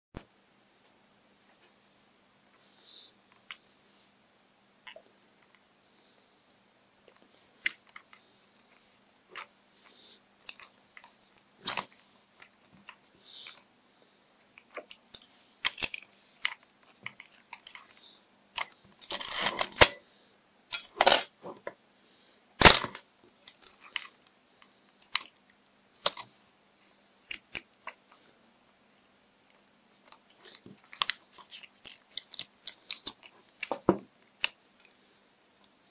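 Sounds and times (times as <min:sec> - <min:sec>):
film clicking and crinkling in camera: 0:14.5 - 0:20.0, 0:30.1 - 0:35.0.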